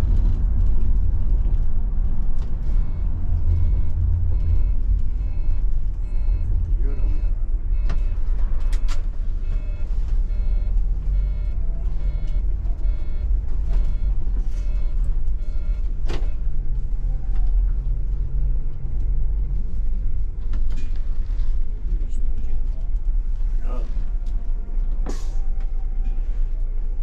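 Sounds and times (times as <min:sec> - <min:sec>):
bus engine and road rumble: 0:00.0 - 0:27.0
reversing alarm beeping: 0:02.6 - 0:16.5.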